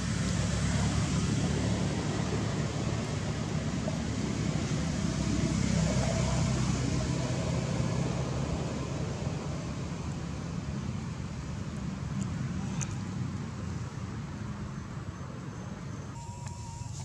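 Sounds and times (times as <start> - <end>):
outdoor background hiss: 7.6 - 17.0.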